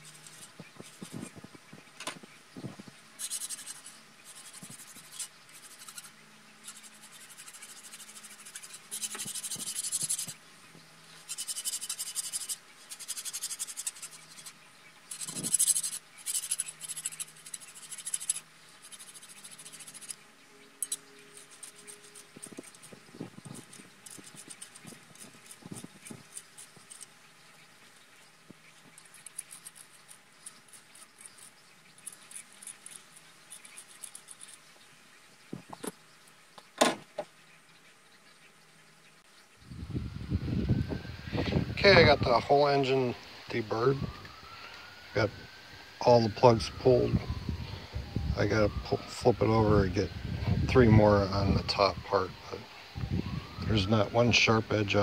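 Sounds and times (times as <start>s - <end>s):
metal file scraping metal: 3.2s - 10.4s, 11.3s - 20.2s.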